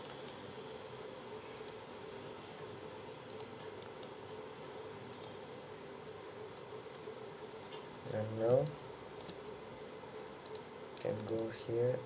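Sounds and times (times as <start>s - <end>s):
low hum and hiss: 0.0s - 12.0s
computer mouse clicks: 1.5s - 1.9s, 3.3s - 4.2s, 5.1s - 5.4s, 6.5s - 7.9s, 8.5s - 9.4s, 10.4s - 11.5s.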